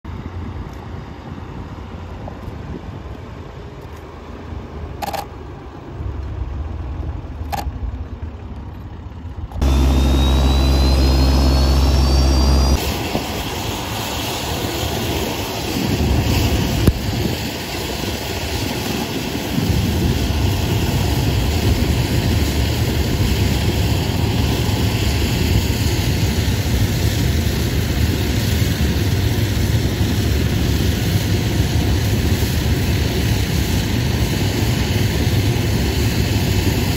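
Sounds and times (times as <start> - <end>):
jet engine running: 0.1 - 36.9
jet engine starting with rising whine: 0.1 - 36.9
tow tug engine running: 5.8 - 15.2.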